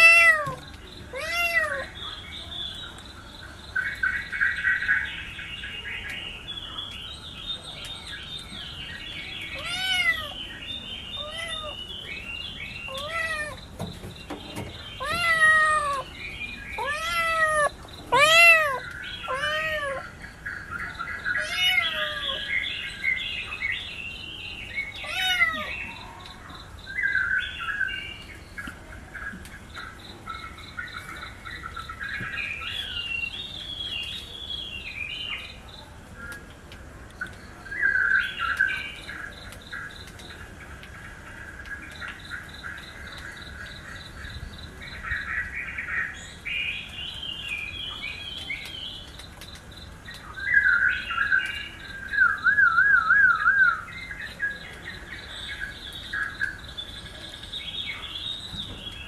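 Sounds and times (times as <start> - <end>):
kitten meowing: 0.0 - 1.9, 9.6 - 10.4, 11.2 - 11.8, 12.9 - 13.6, 15.0 - 16.1, 16.8 - 20.0, 21.4 - 22.4, 25.0 - 25.7
birds chirping: 0.0 - 59.0.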